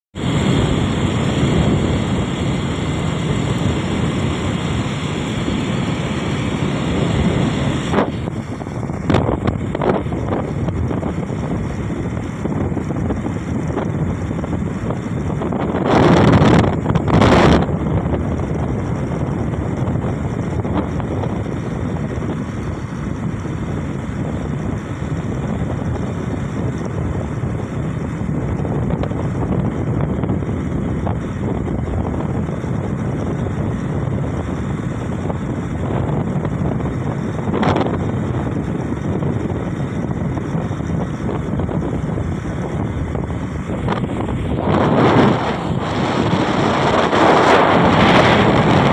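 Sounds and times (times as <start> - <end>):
vehicle road and engine noise: 0.0 - 48.9
wind buffeting microphone: 0.2 - 48.9.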